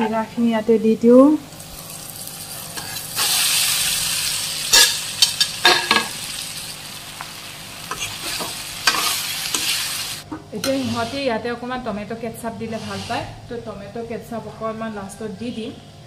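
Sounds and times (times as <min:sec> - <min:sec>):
food sizzling in a hot pan: 0:01.4 - 0:11.2
steel spatula scraping a pan: 0:07.9 - 0:09.9, 0:10.6 - 0:11.3, 0:12.6 - 0:13.4.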